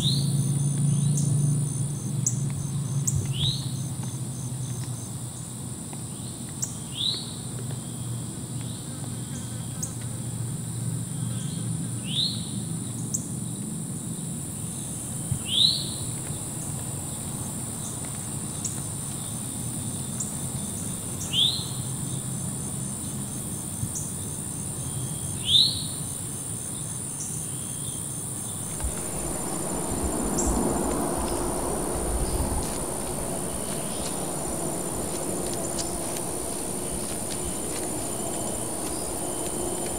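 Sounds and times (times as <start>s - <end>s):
insects shrilling: 28.4s - 39.9s
soft rustling: 28.6s - 39.9s.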